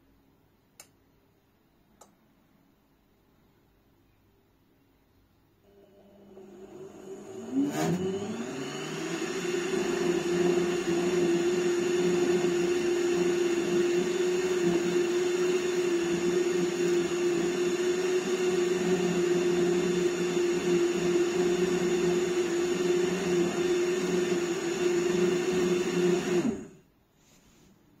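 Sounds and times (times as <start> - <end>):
electric motor whining: 6.2 - 26.8.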